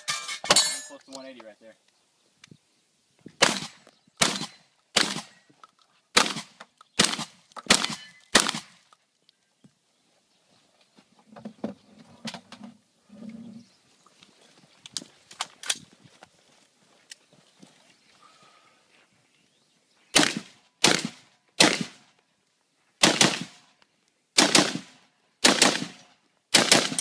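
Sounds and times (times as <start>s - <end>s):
shotgun shots: 3.4s - 5.4s, 6.1s - 8.8s, 20.1s - 22.1s, 23.0s - 23.6s, 24.4s - 27.0s
gun handling clicks: 14.9s - 15.8s.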